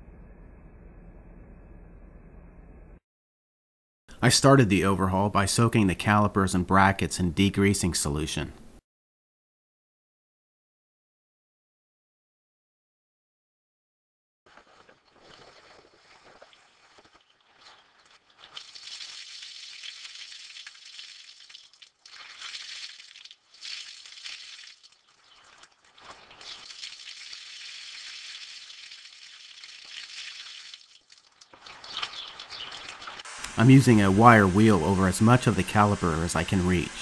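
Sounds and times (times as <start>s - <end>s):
water splashing on metal: 14.5s - 37.0s.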